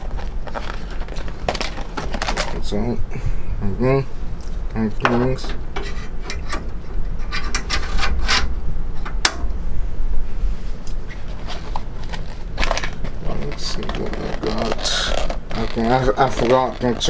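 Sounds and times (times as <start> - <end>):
hard objects clicking and rubbing: 0.0 - 2.7, 11.1 - 17.0
steady low hum: 0.0 - 17.0.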